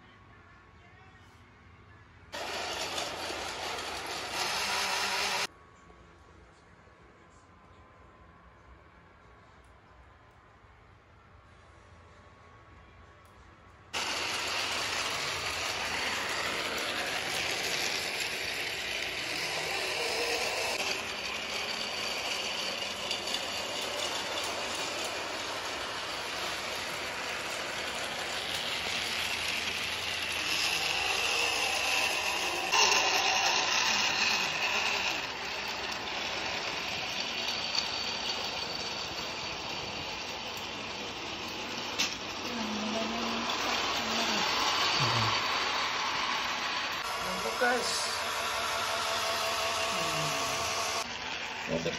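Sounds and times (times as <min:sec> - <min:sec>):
toy train whirring and rattling: 0:02.3 - 0:05.5, 0:14.0 - 0:51.9.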